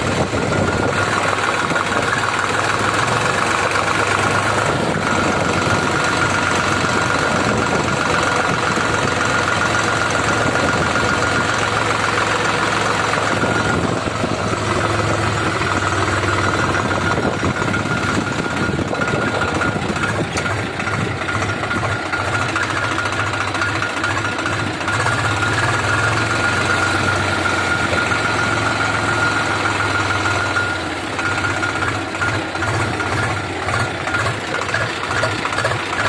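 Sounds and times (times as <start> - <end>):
high-pitched whine: 0.0 - 22.0
tractor diesel engine running: 0.0 - 36.0.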